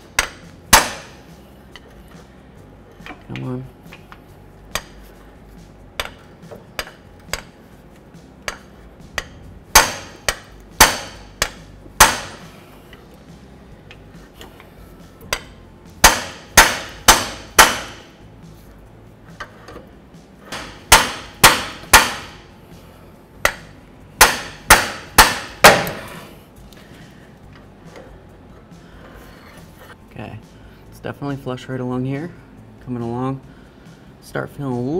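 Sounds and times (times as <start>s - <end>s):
hammer striking metal: 0.1s - 1.2s, 8.4s - 12.6s, 15.3s - 18.2s, 20.5s - 22.5s, 23.4s - 26.2s.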